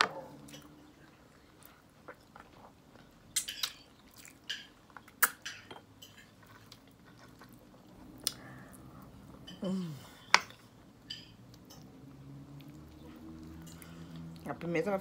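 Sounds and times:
wet chewing and lip-smacking: 12.5s - 14.5s.

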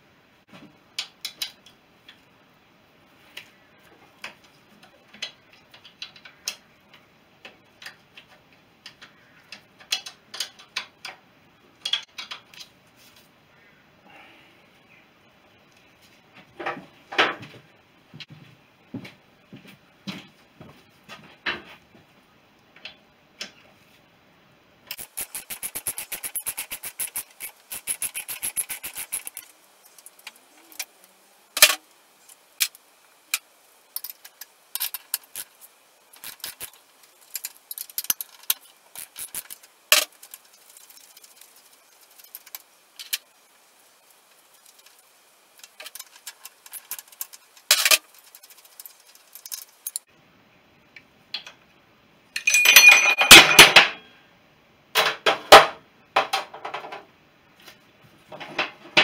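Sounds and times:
ratchet clicking: 24.9s - 30.9s, 36.2s - 41.4s
metal part clattering: 45.6s - 50.0s, 52.4s - 54.0s
spanner clinks: 52.4s - 54.0s.

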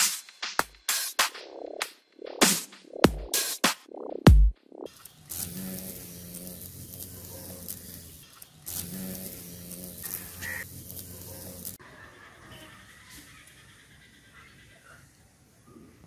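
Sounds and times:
bee buzzing in flight: 4.9s - 11.8s.

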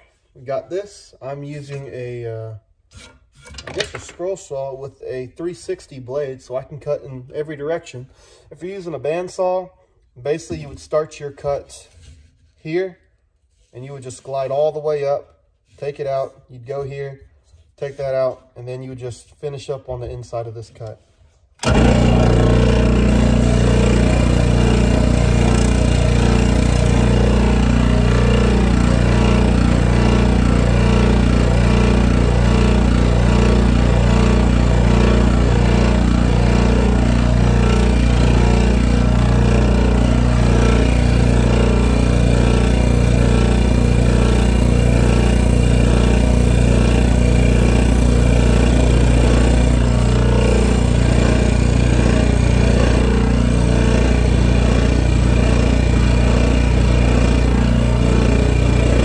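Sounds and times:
scroll saw cutting wood: 21.6s - 59.0s.

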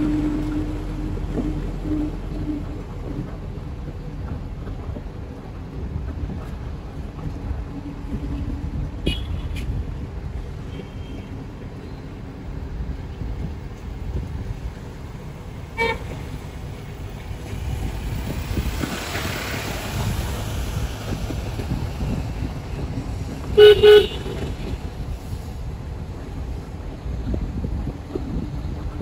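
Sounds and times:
vehicle rumbling on road: 0.0s - 29.0s
vehicle horn toots: 9.0s - 9.6s, 15.8s - 16.2s, 23.6s - 24.6s.

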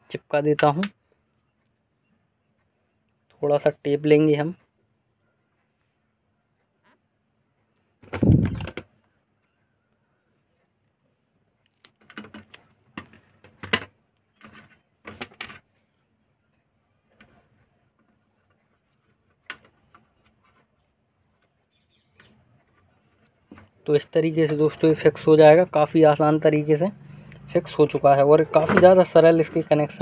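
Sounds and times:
hands rustling tape and parts: 11.5s - 15.9s, 17.0s - 23.8s.

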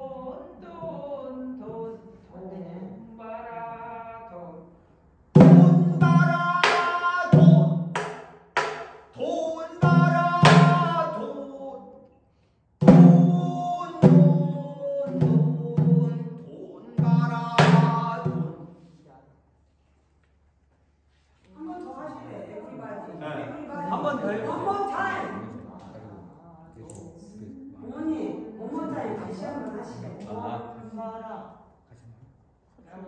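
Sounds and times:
person singing long bending notes: 12.9s - 18.5s.

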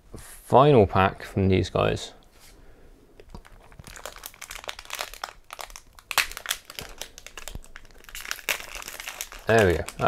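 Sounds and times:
foil wrapper crinkling: 3.3s - 10.0s.

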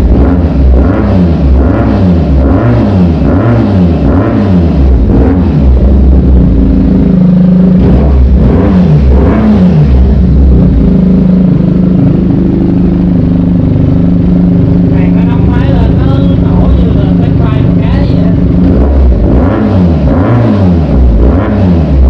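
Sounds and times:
motorcycle engine revving and idling: 0.0s - 22.0s.

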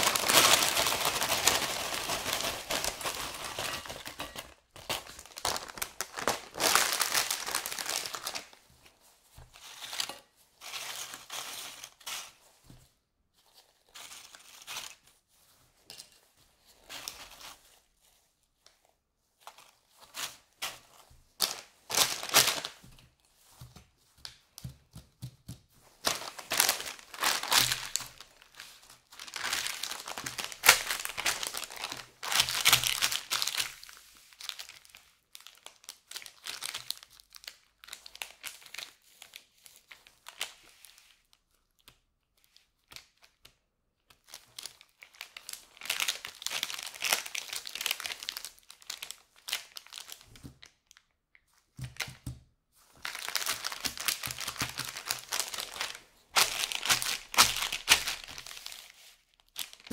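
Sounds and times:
plastic chip bag crinkling: 0.0s - 8.8s, 9.4s - 12.5s, 19.4s - 23.6s, 25.9s - 41.0s, 44.2s - 52.1s, 52.8s - 59.9s.

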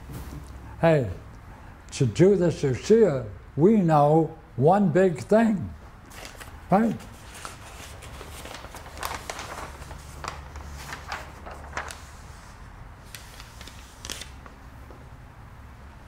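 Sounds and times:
low room hum: 0.0s - 16.0s
paper sheets rustling: 6.1s - 14.6s.

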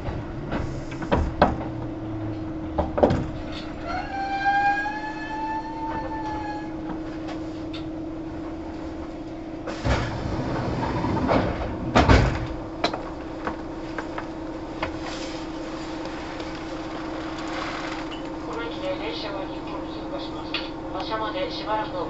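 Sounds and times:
train equipment hum: 0.0s - 22.0s
rushing clattering noise: 9.7s - 14.3s.

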